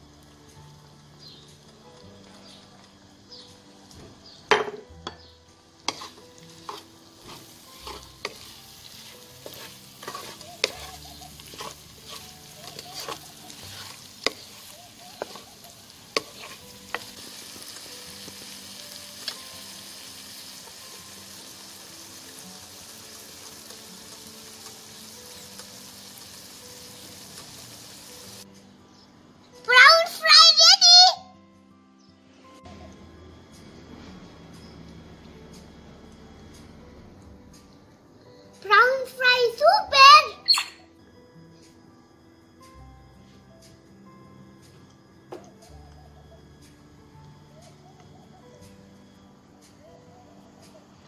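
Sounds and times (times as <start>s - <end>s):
prawns sizzling: 5.1s - 28.5s
spatula knocking and scraping pan: 5.9s - 17.1s.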